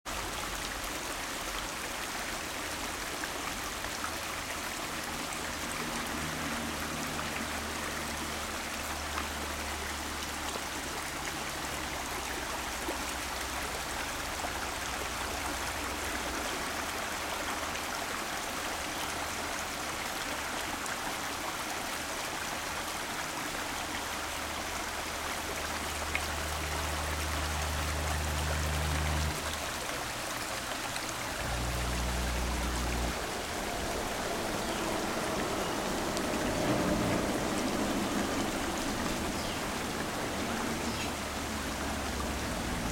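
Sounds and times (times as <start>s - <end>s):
stream running over stones: 0.1s - 42.9s
low rumble: 31.3s - 42.9s.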